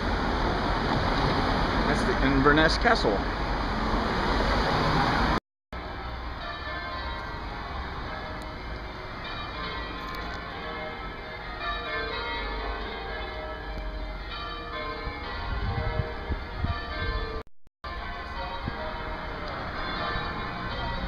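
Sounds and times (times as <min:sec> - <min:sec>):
church bells ringing: 0:05.8 - 0:21.0.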